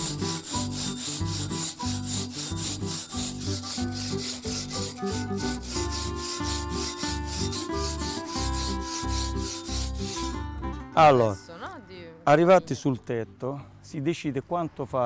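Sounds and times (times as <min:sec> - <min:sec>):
hand saw rasping through stone: 0:00.0 - 0:10.4.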